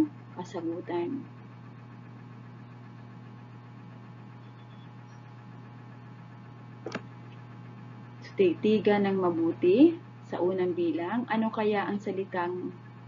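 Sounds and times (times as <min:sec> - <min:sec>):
electrical mains hum: 0:00.0 - 0:13.0
brief click: 0:06.9 - 0:07.1.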